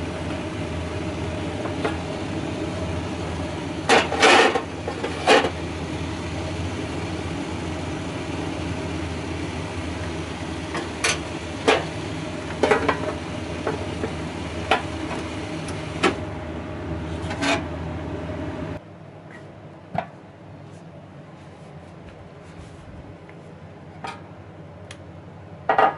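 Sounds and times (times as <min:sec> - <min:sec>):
steady machine hum: 0:00.0 - 0:25.9.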